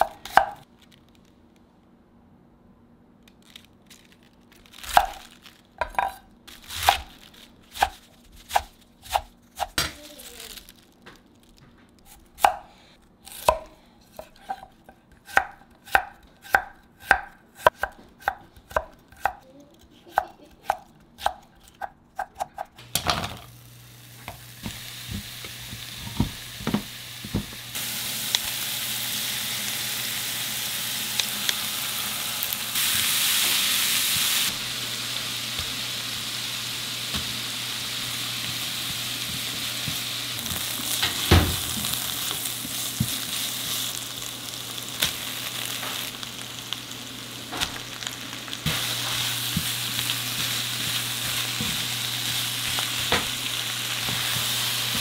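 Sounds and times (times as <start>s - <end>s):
knife chopping on cutting board: 12.1s - 19.4s
food frying in a pan: 22.8s - 55.0s.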